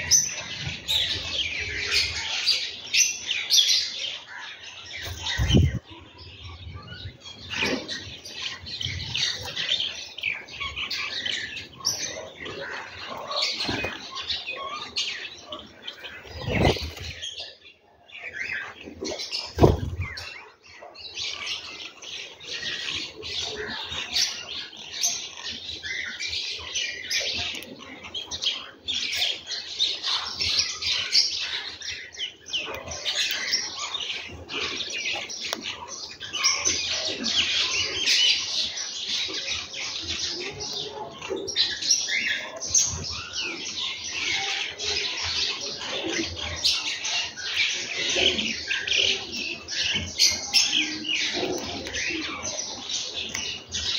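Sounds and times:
sparrows chirping: 0:00.0 - 0:53.9
wing flutters: 0:16.2 - 0:17.2.

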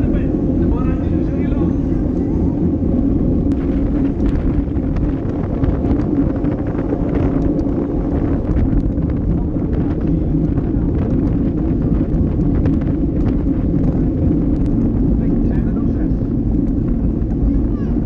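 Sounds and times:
wind rushing over microphone: 0:00.0 - 0:18.0
faint clicks and ticks: 0:03.5 - 0:15.7, 0:16.4 - 0:17.6.

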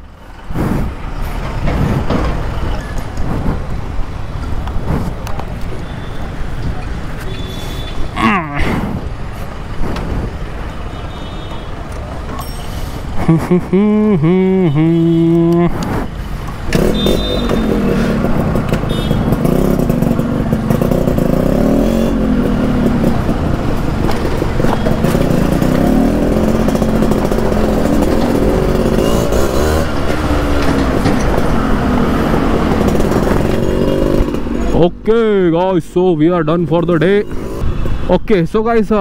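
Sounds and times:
two-stroke motorcycle engine revving: 0:14.1 - 0:15.7, 0:16.7 - 0:35.0.

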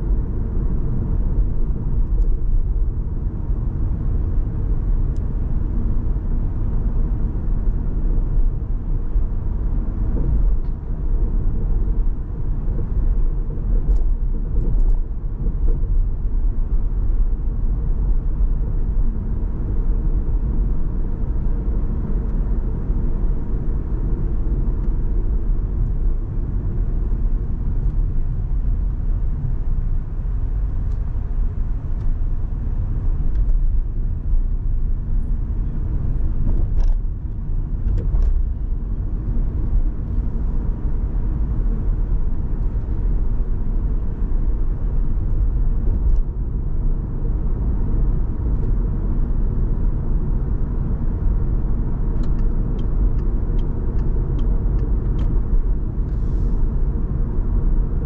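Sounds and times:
car road and engine rumble: 0:00.0 - 0:58.0.

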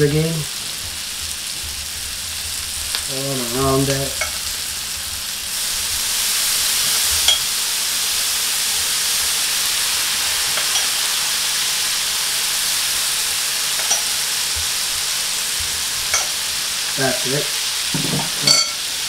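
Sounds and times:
food sizzling on griddle: 0:00.0 - 0:19.0.

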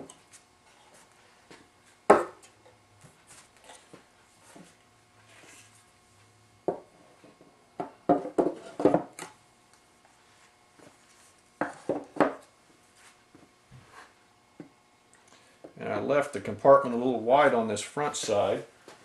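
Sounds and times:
wooden planes knocking on wood: 0:07.8 - 0:09.1, 0:11.6 - 0:12.4.

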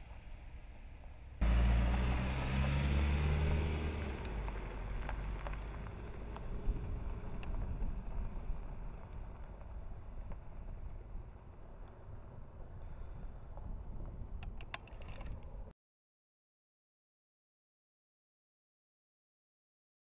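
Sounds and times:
tyres on gravel road: 0:00.0 - 0:15.7
car engine under throttle: 0:01.3 - 0:10.4.

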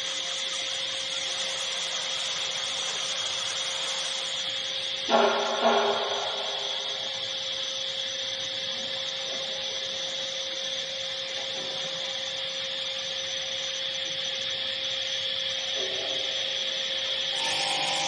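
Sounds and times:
router high whine: 0:00.0 - 0:18.0
router low hum: 0:17.2 - 0:18.0.

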